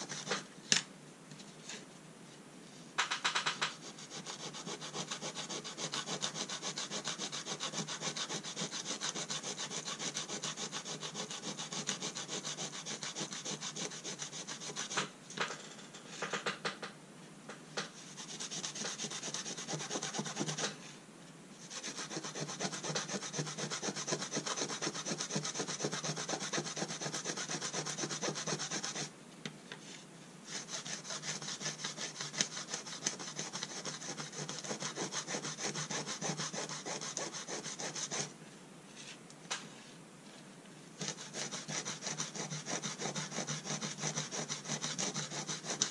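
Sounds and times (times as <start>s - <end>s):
scratchy rasping of brass plate: 3.6s - 15.0s, 21.7s - 29.1s, 30.5s - 38.3s, 41.0s - 45.9s.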